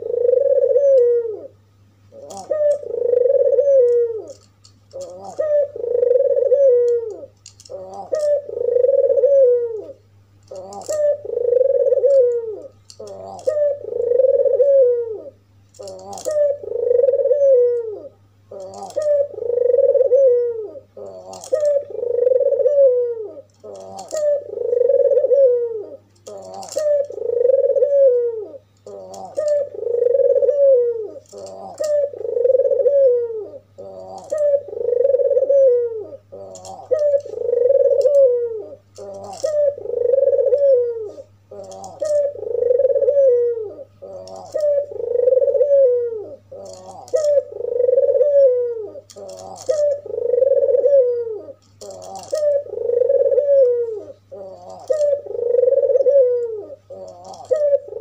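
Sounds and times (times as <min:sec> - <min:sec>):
dove cooing: 0:00.0 - 0:58.0.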